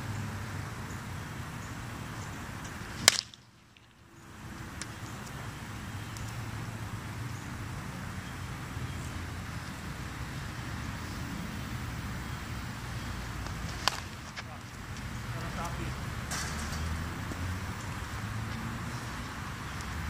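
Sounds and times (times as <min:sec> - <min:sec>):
background noise: 0:00.0 - 0:20.0
wooden bat cracking ball: 0:03.0 - 0:03.8, 0:13.7 - 0:14.5.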